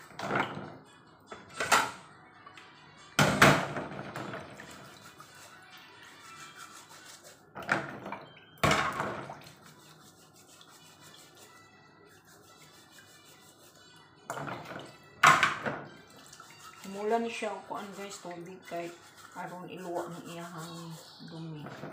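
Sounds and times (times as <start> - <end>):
scouring pad scrubbing shells: 9.5 - 11.6, 12.2 - 14.8, 16.2 - 21.9.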